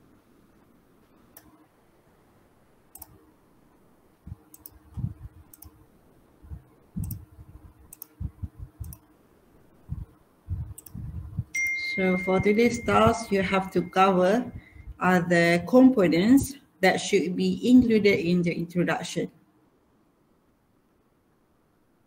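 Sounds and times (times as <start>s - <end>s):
computer mouse clicks: 1.3s - 1.6s, 2.9s - 3.2s, 4.3s - 5.8s, 7.0s - 7.3s, 7.9s - 8.2s, 8.8s - 9.1s, 10.7s - 11.0s
low thumps: 8.2s - 9.0s, 9.9s - 11.6s.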